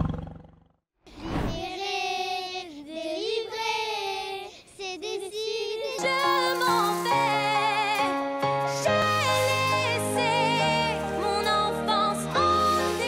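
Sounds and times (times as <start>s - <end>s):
girl singing: 1.5s - 8.1s
woman singing with instrumental accompaniment: 5.8s - 13.0s.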